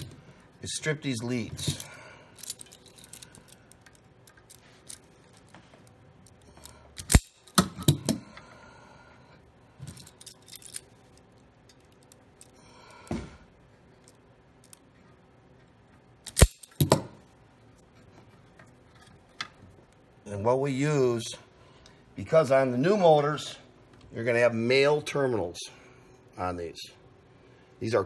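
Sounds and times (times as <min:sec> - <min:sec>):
wires being handled: 0:00.0 - 0:08.1, 0:09.7 - 0:17.0, 0:17.6 - 0:20.2.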